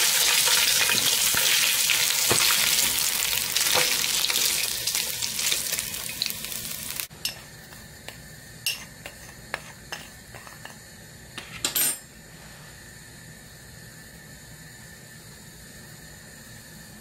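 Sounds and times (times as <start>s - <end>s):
meat sizzling in a frying pan: 0.0s - 7.1s
spatula scraping a pan: 7.3s - 10.8s.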